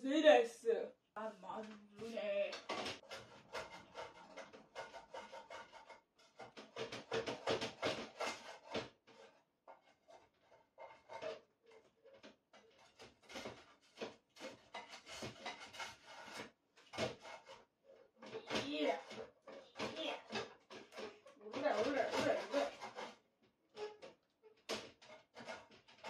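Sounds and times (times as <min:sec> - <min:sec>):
scraping and rubbing strokes: 0:02.0 - 0:11.4, 0:12.2 - 0:23.2
utensils and dishes clattering: 0:02.5 - 0:08.8, 0:12.1 - 0:17.6, 0:18.2 - 0:23.2.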